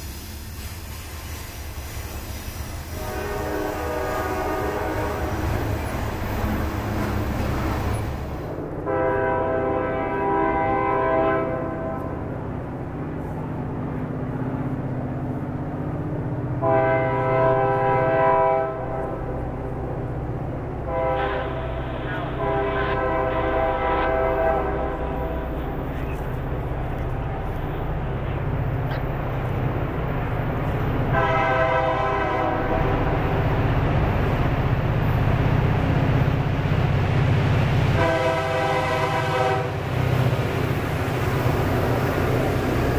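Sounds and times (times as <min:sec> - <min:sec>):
locomotive engines rumbling: 0:00.0 - 0:42.9
diesel locomotive horn: 0:02.8 - 0:06.0, 0:08.5 - 0:12.4, 0:16.6 - 0:19.8, 0:20.8 - 0:26.1, 0:31.0 - 0:33.4, 0:37.8 - 0:40.0.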